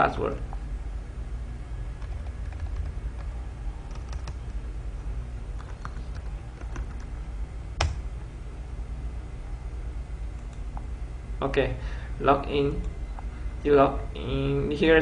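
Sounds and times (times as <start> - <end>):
steady low hum: 0.0 - 15.0
keyboard keystrokes: 2.0 - 3.3.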